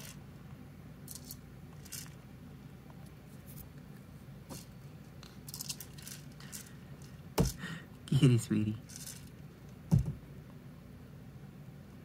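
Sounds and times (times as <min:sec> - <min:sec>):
low steady hum: 0:00.0 - 0:12.0
rabbit tipping plastic toy: 0:01.1 - 0:02.2, 0:04.5 - 0:07.6, 0:08.8 - 0:09.4.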